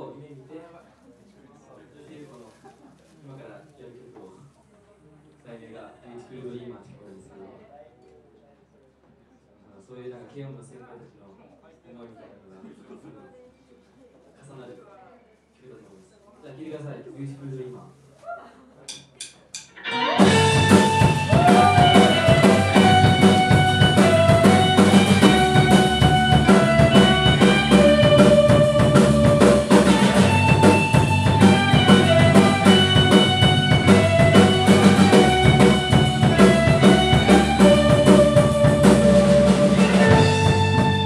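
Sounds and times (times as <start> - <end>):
rock band playing: 19.7 - 41.0.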